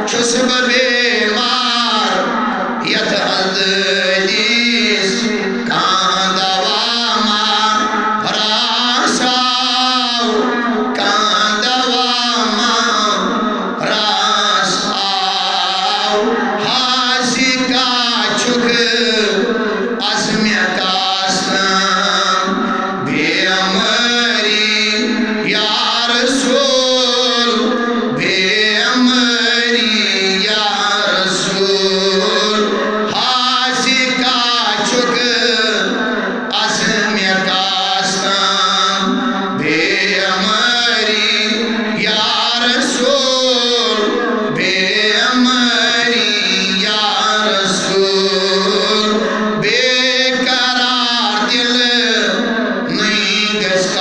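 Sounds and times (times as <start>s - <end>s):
man chanting into a microphone: 0.0s - 54.0s.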